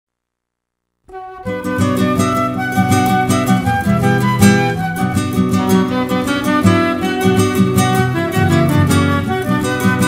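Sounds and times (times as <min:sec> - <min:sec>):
instrumental music with steady beat: 0:01.1 - 0:10.0.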